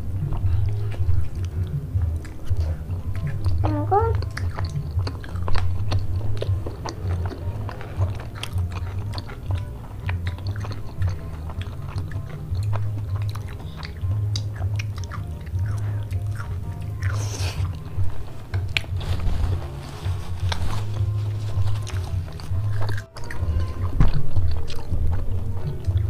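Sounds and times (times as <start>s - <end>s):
breathy slurp: 0.0s - 18.9s
lip smacks: 0.0s - 19.3s, 20.1s - 26.0s
moist chewing: 0.0s - 26.0s.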